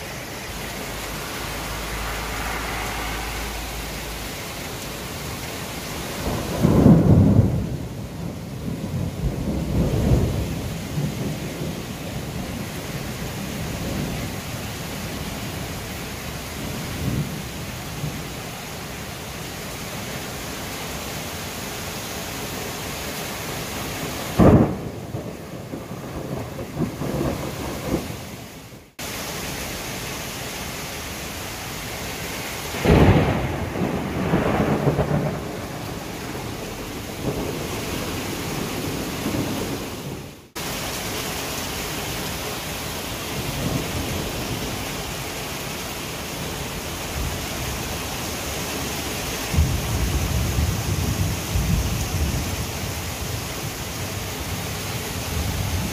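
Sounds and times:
torrential rain: 0.0 - 55.9
thunderclap rumbling: 0.2 - 14.4, 24.4 - 28.4, 32.7 - 40.6, 49.5 - 53.7.

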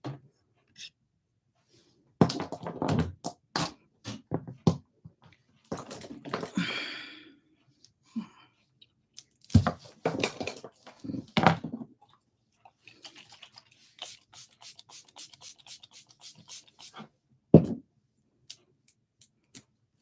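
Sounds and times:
spray bottle hissing: 14.0 - 17.0.

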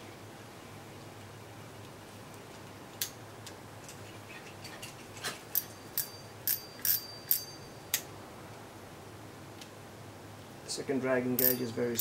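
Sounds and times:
spinning reel clicking: 5.9 - 7.5, 11.4 - 12.0.

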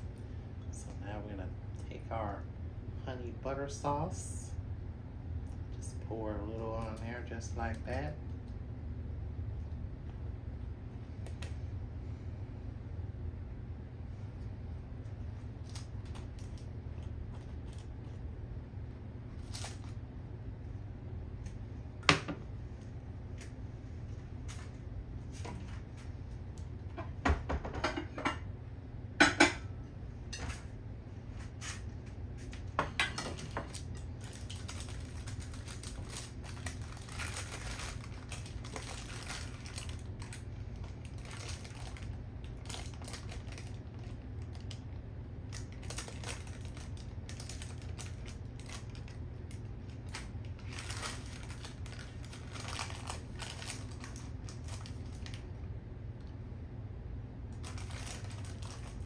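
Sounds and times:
steady low hum: 0.0 - 59.0
kitchenware clinking: 27.4 - 28.5, 29.2 - 29.7.

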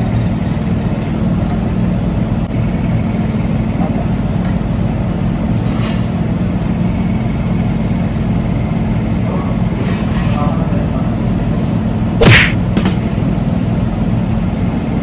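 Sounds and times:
mechanical hum and rumble: 0.0 - 15.0
short sharp sound: 12.2 - 13.1.

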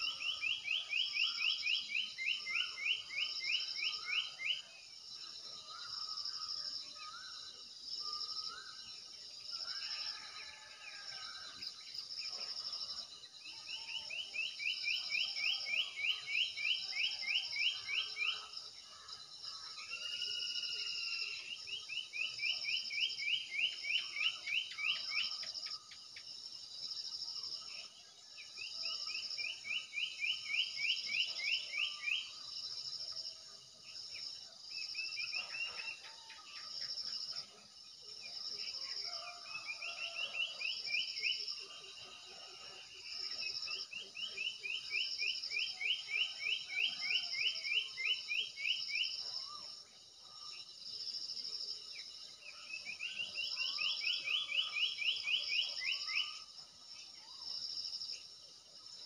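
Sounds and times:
insects pulsing chirr: 0.0 - 59.0.

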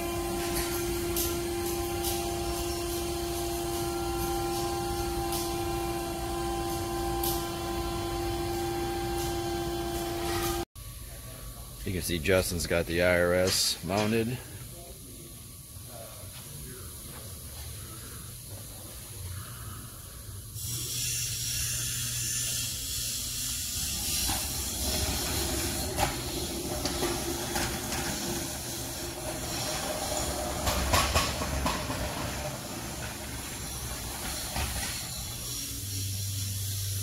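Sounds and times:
steady hiss: 11.1 - 37.0
knocks and clatters: 24.3 - 35.1.

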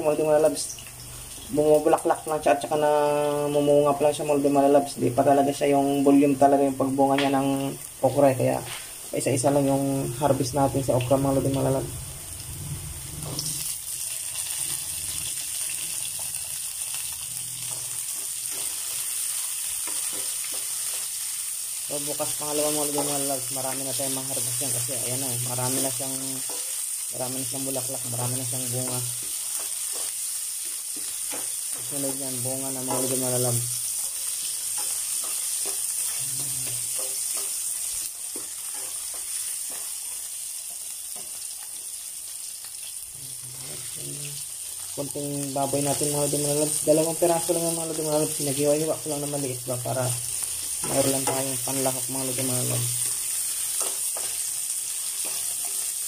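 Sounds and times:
onion sizzling in oil: 0.0 - 56.0
spatula scraping a wok: 14.4 - 21.4, 50.2 - 56.0.

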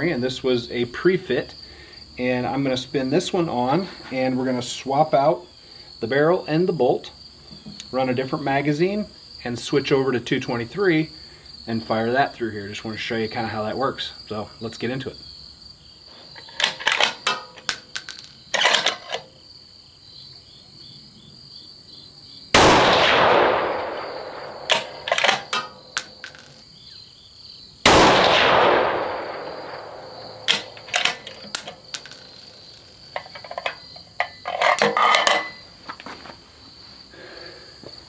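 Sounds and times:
rifle shots echoing: 22.6 - 25.9, 27.9 - 31.6.

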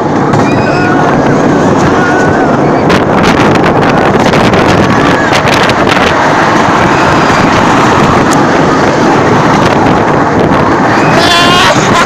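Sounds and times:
wind rushing over microphone: 0.0 - 12.0.

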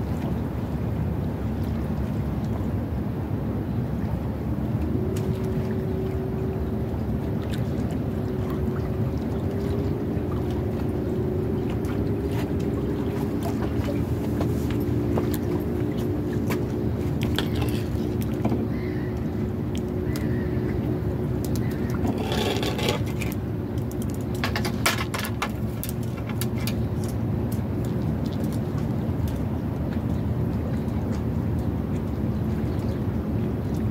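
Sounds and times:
motor droning: 4.8 - 23.4.

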